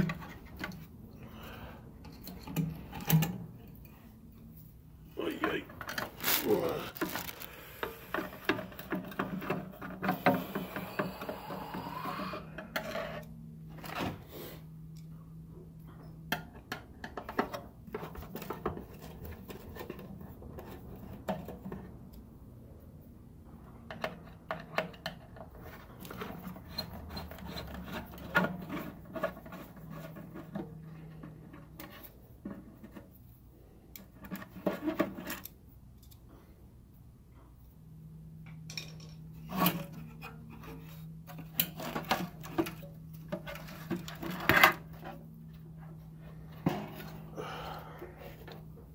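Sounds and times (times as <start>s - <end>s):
steady low hum: 0.0s - 48.9s
handling rubbing noises: 5.2s - 9.1s.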